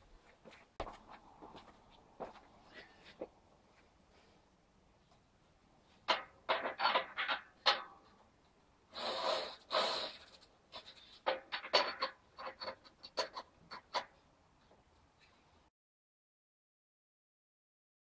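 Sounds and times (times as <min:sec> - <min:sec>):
hissing rubbing of hub parts: 0:08.9 - 0:11.2.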